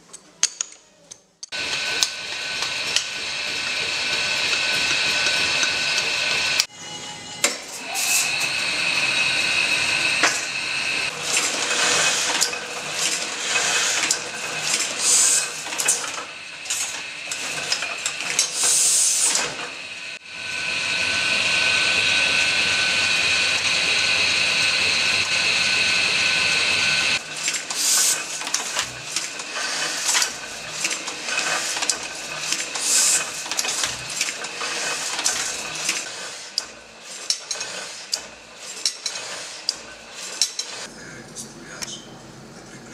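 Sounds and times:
rollers turning: 1.4s - 42.9s
mechanical whine: 1.6s - 36.0s
printing press clattering: 8.4s - 19.8s, 21.3s - 42.9s.

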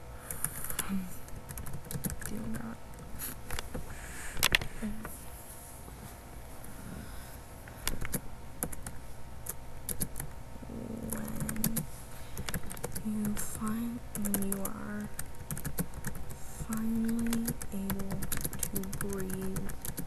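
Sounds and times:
person humming quietly: 3.9s - 5.2s, 10.7s - 11.8s.

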